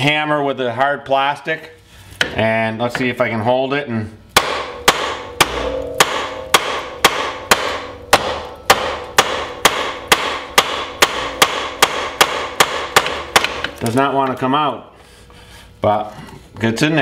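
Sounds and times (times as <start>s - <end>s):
hammer striking metal joint: 4.4s - 13.7s.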